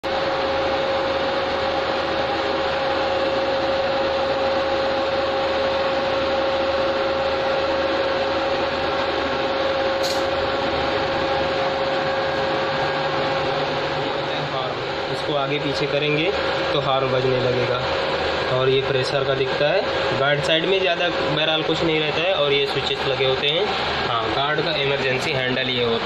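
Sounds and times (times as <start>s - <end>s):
train machinery hum and hiss: 0.1s - 26.0s
sharp click: 10.0s - 10.3s.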